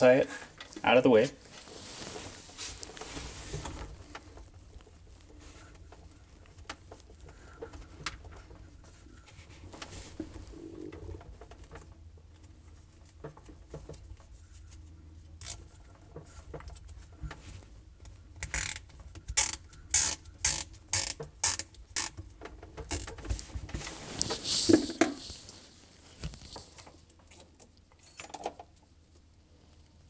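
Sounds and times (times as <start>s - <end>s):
handling noise: 0.7s - 14.2s, 20.9s - 27.3s
zip tie ratcheting: 18.4s - 18.8s, 19.4s - 22.2s, 22.9s - 23.1s.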